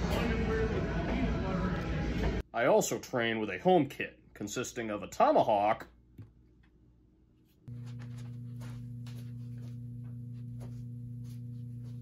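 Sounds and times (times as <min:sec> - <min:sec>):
steady low hum: 0:07.7 - 0:12.0.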